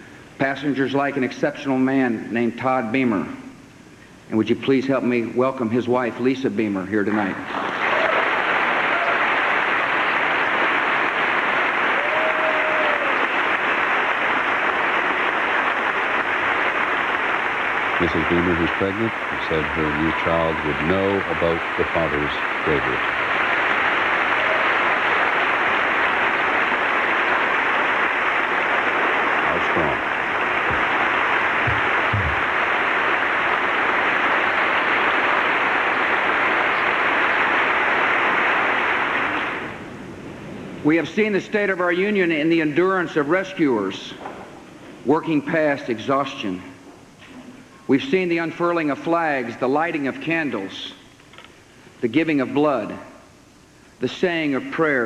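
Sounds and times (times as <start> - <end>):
large audience applauding: 7.4 - 40.0.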